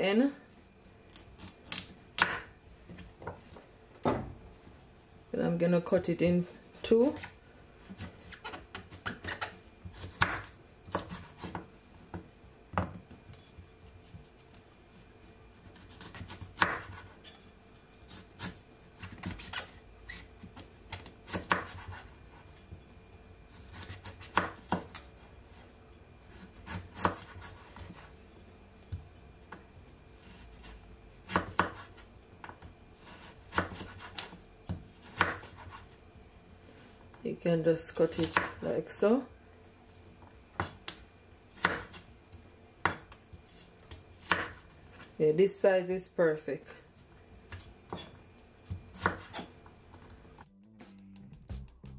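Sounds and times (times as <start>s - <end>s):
knife cutting carrot on board: 7.9s - 14.3s, 18.0s - 22.6s, 26.3s - 28.1s, 30.2s - 35.9s, 41.6s - 42.1s, 42.8s - 45.1s, 47.5s - 49.6s.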